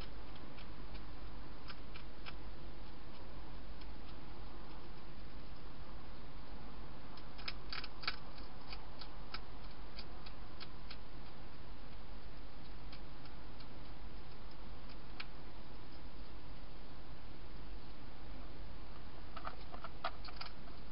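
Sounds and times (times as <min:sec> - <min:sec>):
hedgehog crunching dry food: 0:00.0 - 0:05.7, 0:07.1 - 0:16.1, 0:19.3 - 0:20.9
steady hiss and low hum: 0:00.0 - 0:20.9.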